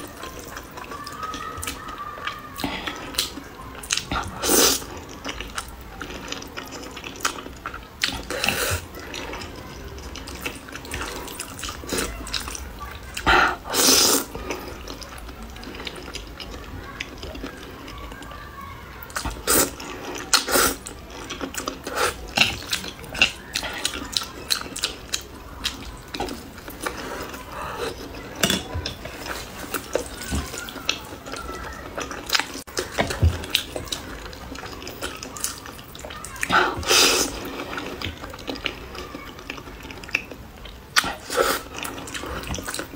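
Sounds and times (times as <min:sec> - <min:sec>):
person slurping noodles: 0:08.1 - 0:08.8, 0:13.3 - 0:14.8, 0:36.5 - 0:38.0, 0:41.0 - 0:42.6.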